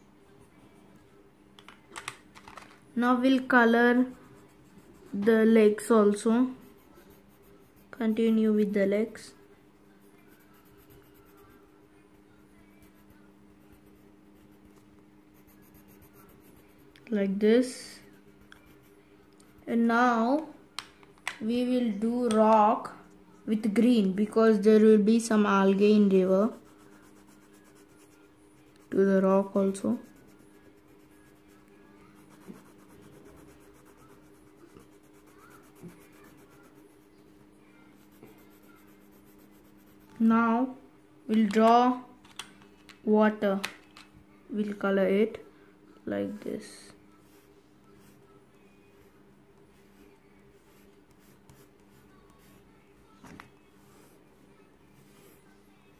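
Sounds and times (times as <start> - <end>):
pencil scratching on paper: 4.0 - 5.6, 6.4 - 9.1, 10.0 - 11.8, 12.8 - 17.0, 26.5 - 37.2, 38.0 - 40.2, 50.6 - 52.6.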